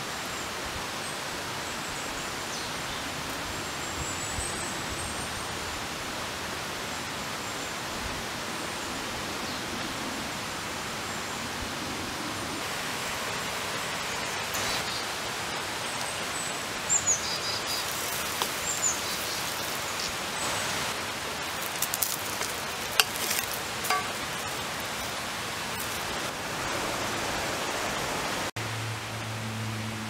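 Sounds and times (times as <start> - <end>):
steady rushing hiss: 12.6 - 28.7.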